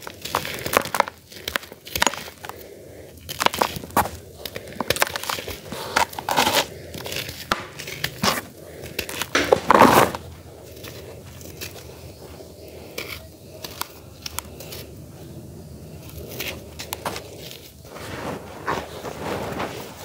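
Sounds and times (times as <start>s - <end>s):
charcoal crunching: 0.0s - 20.0s
powder rustling and sifting: 3.2s - 20.0s.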